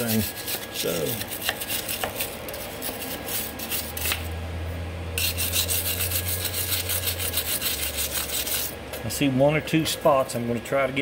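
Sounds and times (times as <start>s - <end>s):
wire brush scraping metal: 0.0s - 4.2s, 5.2s - 8.8s
low steady hum: 0.0s - 11.0s.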